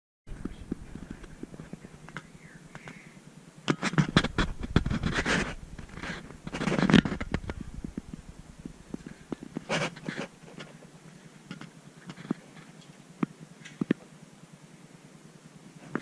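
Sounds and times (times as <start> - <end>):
scratching and scraping: 3.7 - 12.7.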